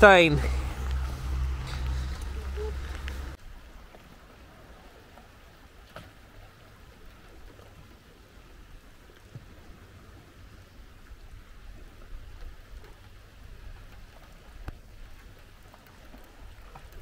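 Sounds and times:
raindrops ticking: 0:00.0 - 0:03.4
rain hiss: 0:00.0 - 0:03.8.

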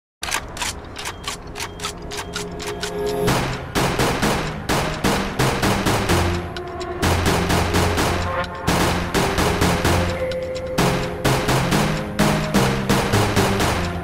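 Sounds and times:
held bass and synth notes: 0:03.2 - 0:14.0
punchy drum beat: 0:03.3 - 0:14.0.

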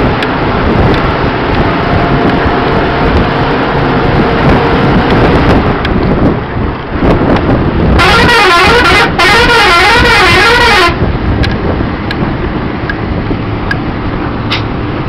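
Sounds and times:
rumble of moving bus: 0:00.0 - 0:15.0
wind: 0:00.0 - 0:15.0
warbling bus horn: 0:07.9 - 0:11.2.

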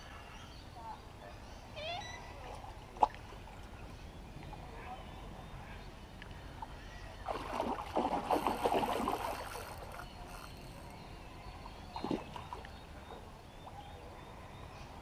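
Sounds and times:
fish splashing at the surface: 0:07.3 - 0:10.0.

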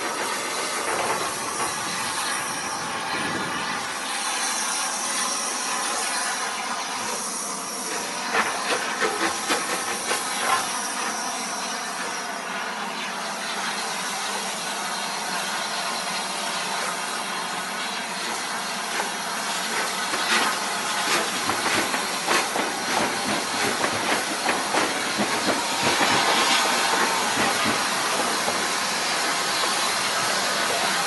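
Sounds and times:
train wheels clicking on track: 0:00.0 - 0:05.3, 0:07.0 - 0:11.4, 0:18.2 - 0:31.0
steam locomotive hissing steam: 0:00.0 - 0:31.0.

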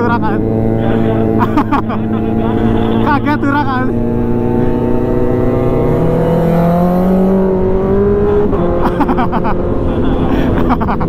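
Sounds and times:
person speaking: 0:00.0 - 0:04.9
motorcycle engine: 0:00.0 - 0:11.0
sport bike engine accelerating: 0:00.0 - 0:11.0.

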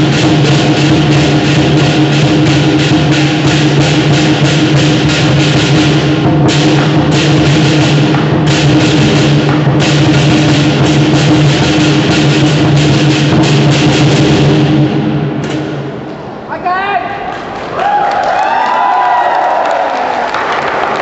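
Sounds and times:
big drum beaten fast: 0:00.0 - 0:16.0
cymbals clashing: 0:00.0 - 0:16.1.

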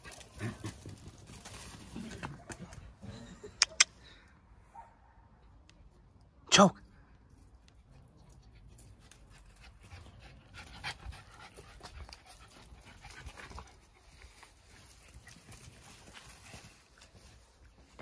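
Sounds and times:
dog panting: 0:08.6 - 0:13.9
paws scuffing on soil: 0:10.7 - 0:18.0.

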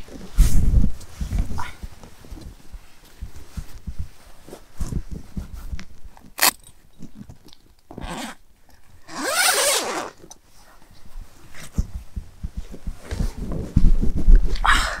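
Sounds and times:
fabric and bedding rustling: 0:00.0 - 0:06.4, 0:09.1 - 0:14.5.

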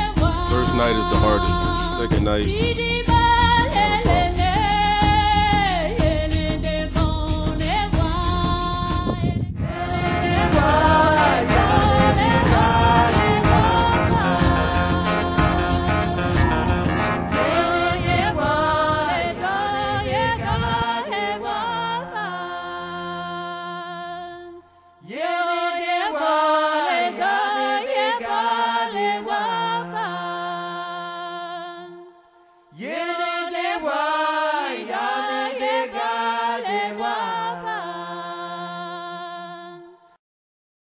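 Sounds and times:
chanted vocal line: 0:00.0 - 0:06.7, 0:09.6 - 0:40.2
steady musical drone: 0:09.6 - 0:23.0.

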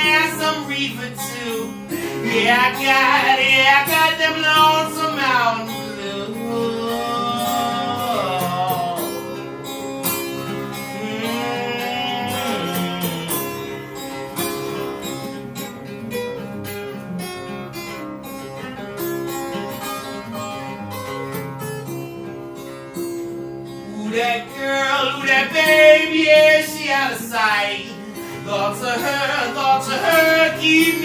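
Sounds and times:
acoustic guitar strumming: 0:00.0 - 0:31.0.

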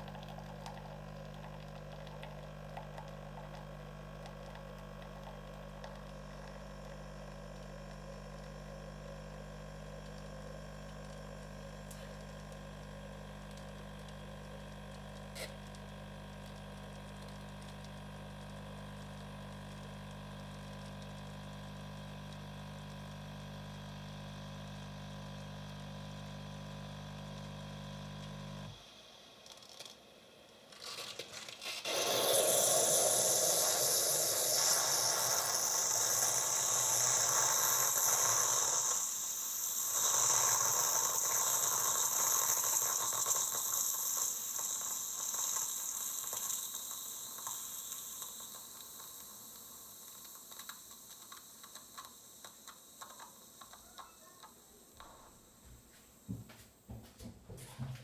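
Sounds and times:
milk pouring into glass: 0:00.0 - 0:08.5
coffee machine pump humming: 0:00.0 - 0:58.0
loud steam hiss: 0:31.7 - 0:51.3.

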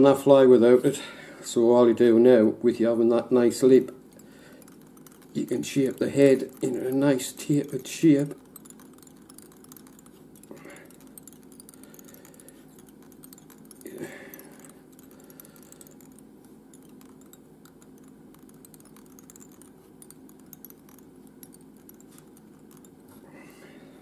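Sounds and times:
steady low hum: 0:00.0 - 0:24.0
faint handling clicks: 0:04.1 - 0:23.2.

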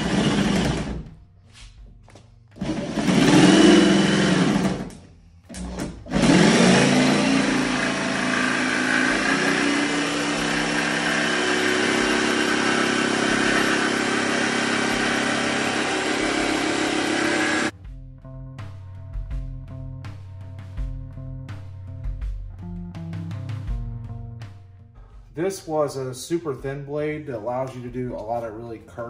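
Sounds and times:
jigsaw cutting metal: 0:00.0 - 0:01.0, 0:02.6 - 0:17.7.

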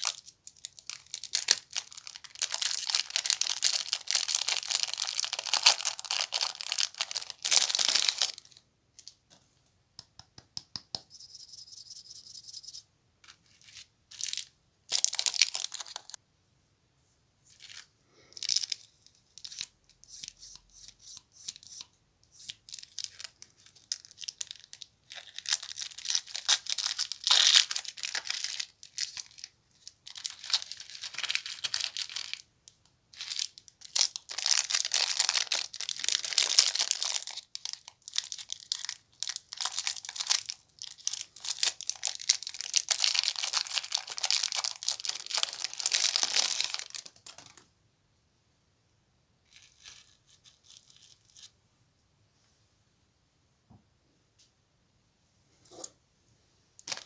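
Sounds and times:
plastic wrappers crinkling: 0:00.0 - 0:09.2, 0:13.2 - 0:16.2, 0:17.5 - 0:20.6, 0:21.5 - 0:32.5, 0:33.1 - 0:47.7, 0:56.8 - 0:57.0.

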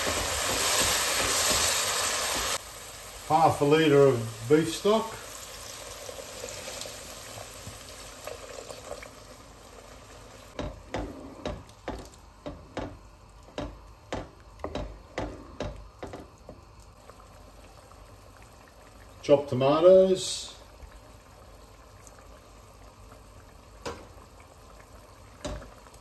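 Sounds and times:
stock hissing and bubbling in pot: 0:00.0 - 0:26.0
wooden spoon scraping a pot: 0:10.6 - 0:12.9.

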